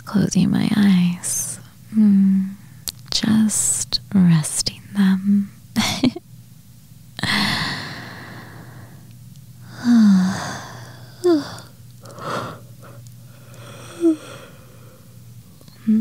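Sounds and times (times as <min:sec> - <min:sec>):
woman sighing: 0:07.2 - 0:08.8, 0:09.7 - 0:12.6, 0:13.6 - 0:14.7
woman breathing: 0:07.2 - 0:09.0, 0:09.6 - 0:16.0
woman murmuring softly: 0:15.8 - 0:16.0.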